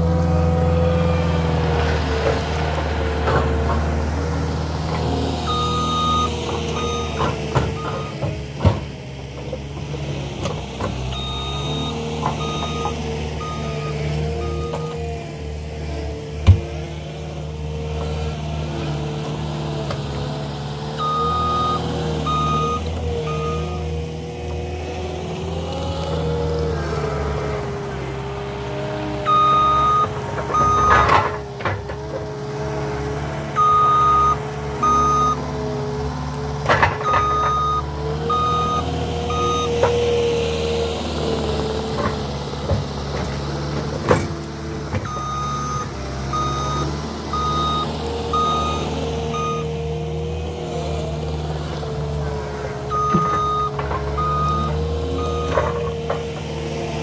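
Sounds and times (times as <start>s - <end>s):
diesel engine under load: 0.0s - 57.0s
backup alarm beeping: 5.5s - 7.2s, 11.2s - 14.9s, 21.0s - 23.8s, 29.3s - 31.1s, 33.6s - 35.4s, 37.0s - 39.8s, 45.1s - 49.7s, 52.9s - 55.6s.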